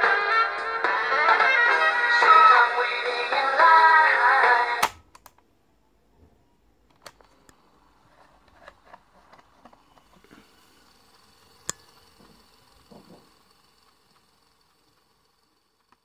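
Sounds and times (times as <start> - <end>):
music from small speaker: 0.0 - 4.8
cassette compartment click: 4.8 - 5.3.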